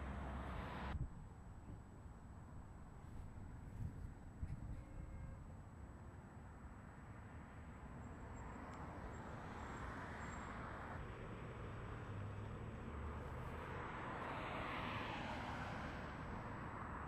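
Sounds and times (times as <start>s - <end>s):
vehicle passing: 10.7s - 17.0s.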